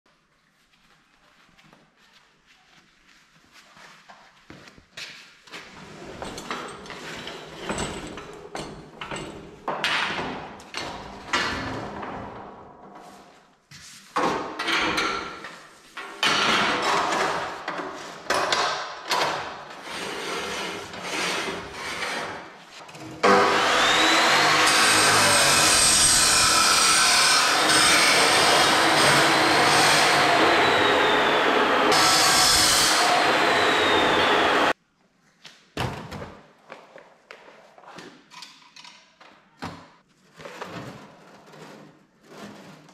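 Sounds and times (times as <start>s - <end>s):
chop saw grinding steel: 23.2s - 34.8s.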